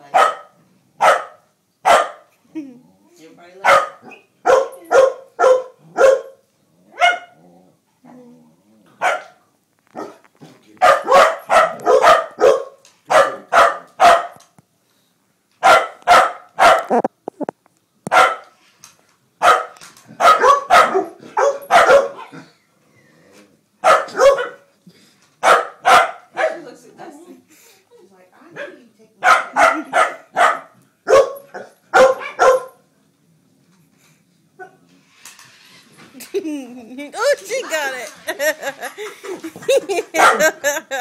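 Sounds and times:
dog barking: 0.1 - 2.3, 3.6 - 7.4, 9.0 - 9.4, 10.0 - 10.2, 10.8 - 14.4, 15.6 - 17.1, 18.1 - 18.5, 19.4 - 22.4, 23.8 - 24.7, 25.4 - 26.7, 28.6 - 32.8, 40.1 - 40.6.

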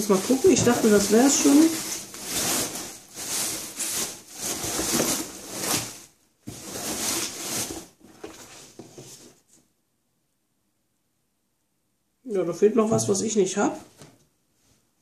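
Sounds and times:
hands rummaging through cardboard box: 0.0 - 9.3.

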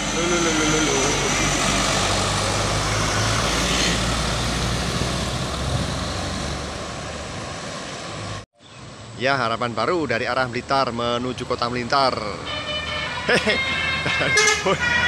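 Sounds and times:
heavy vehicle driving past: 0.0 - 9.2.

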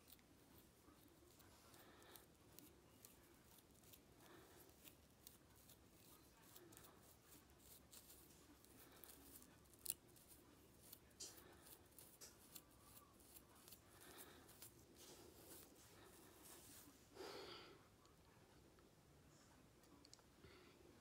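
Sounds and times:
comb scratching scalp and hair: 0.0 - 17.0.

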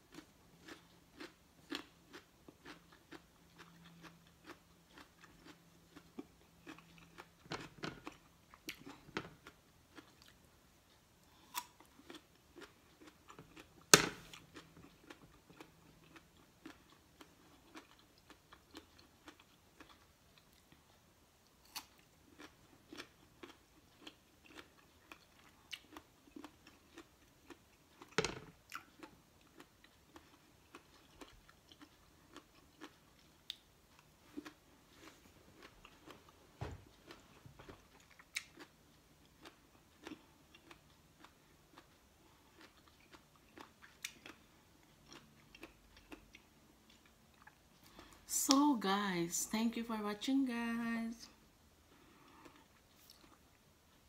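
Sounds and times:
chewing and crunching raw fruit: 0.0 - 48.7, 51.8 - 54.0.

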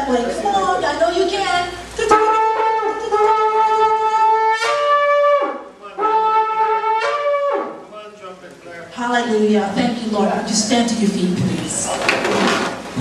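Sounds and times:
shofar blasts: 2.1 - 7.9.

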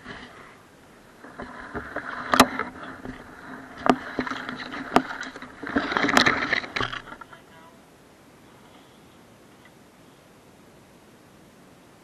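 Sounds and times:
water rushing against hull: 0.0 - 7.5.

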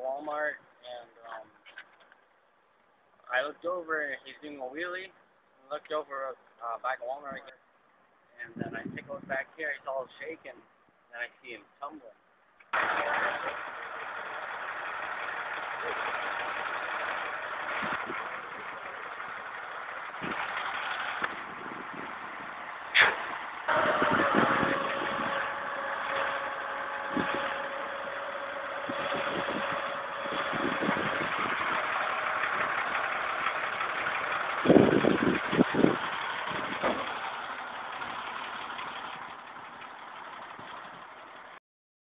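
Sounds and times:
truck engine running: 12.7 - 41.6
steady whine: 12.8 - 37.2.

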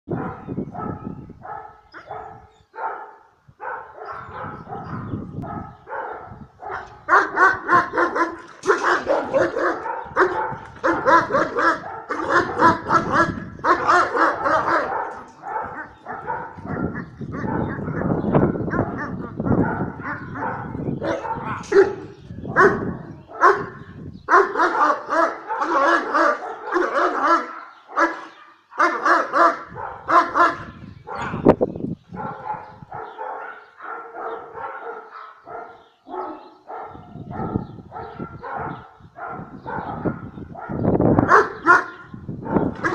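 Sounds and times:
dog barking: 0.1 - 31.5, 32.1 - 42.9.

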